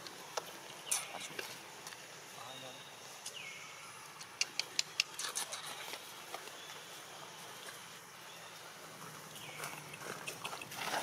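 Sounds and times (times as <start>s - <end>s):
sharp clicks: 4.2s - 5.4s.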